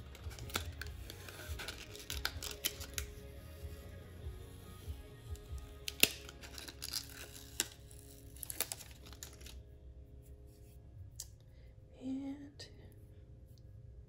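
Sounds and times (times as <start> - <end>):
plastic tape crinkling and crackling: 0.0 - 9.6.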